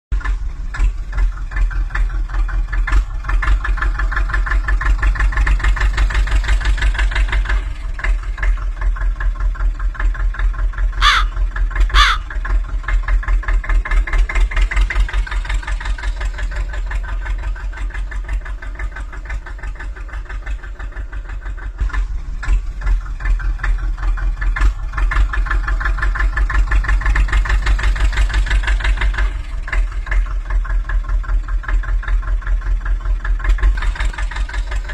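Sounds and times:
tractor engine idling: 0.1 - 34.9
bird calls: 11.0 - 12.4.

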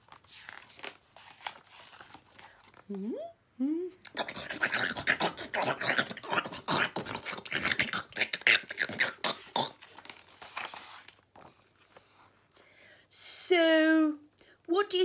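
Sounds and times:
book page turning: 0.0 - 3.0, 9.8 - 12.4.

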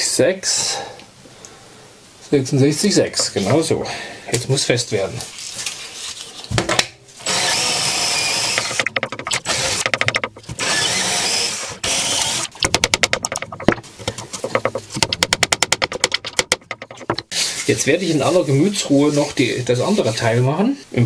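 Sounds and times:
cordless drill running: 7.2 - 8.8, 9.4 - 9.9, 10.6 - 12.5
rapid clicking: 12.1 - 17.3.

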